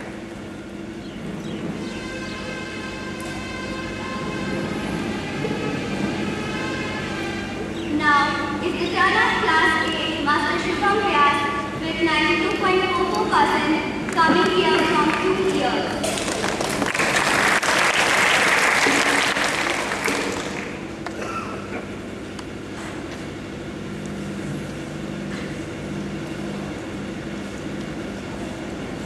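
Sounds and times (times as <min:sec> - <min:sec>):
steady low hum: 0:00.0 - 0:29.0
audience clapping: 0:14.1 - 0:15.3, 0:15.9 - 0:21.2.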